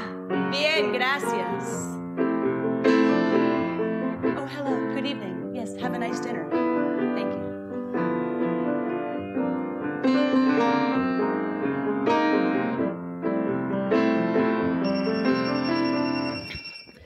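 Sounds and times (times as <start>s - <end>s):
piano chords ringing: 0.0s - 17.0s.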